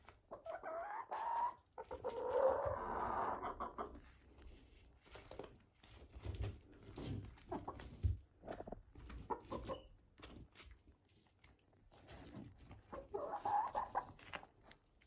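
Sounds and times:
hens clucking: 0.3s - 4.0s, 8.5s - 9.9s, 12.9s - 14.3s.

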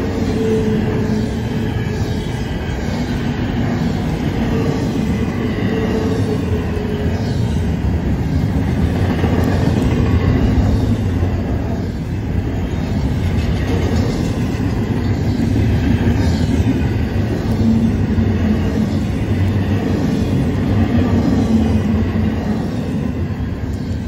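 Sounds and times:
freight train wheels rumbling: 0.0s - 24.0s.

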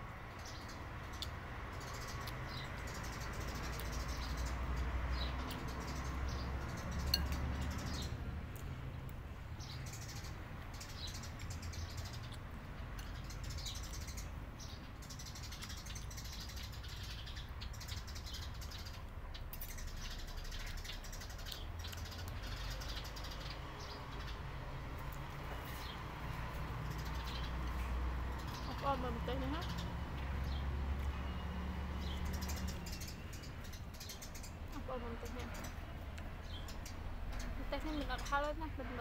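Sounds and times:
birds chirping: 0.0s - 39.0s
metal spoon in a bowl: 7.1s - 7.4s.

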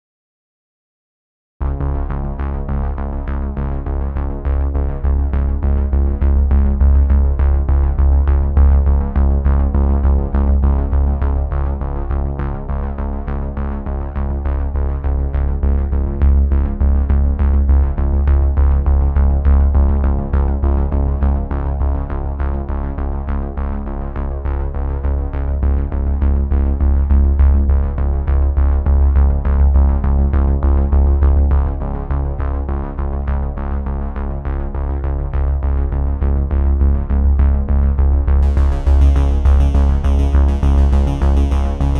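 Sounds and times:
heavy bass: 1.6s - 41.9s
drum machine beat: 38.4s - 41.9s
synthesizer chords: 38.4s - 41.9s.

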